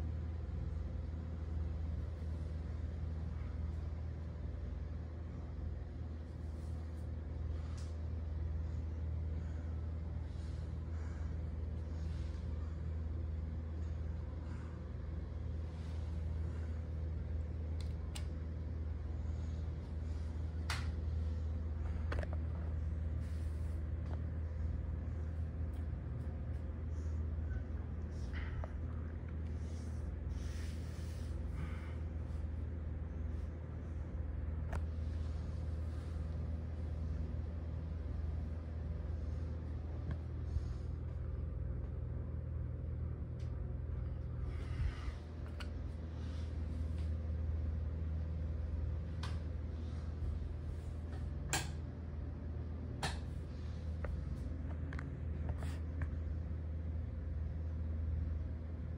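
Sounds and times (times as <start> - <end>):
ceiling fan humming: 0.0 - 58.9
ceiling fan clicks: 6.9 - 8.2, 16.2 - 19.1, 19.7 - 23.1, 24.0 - 29.6, 41.0 - 44.5, 45.3 - 46.1, 46.8 - 56.2.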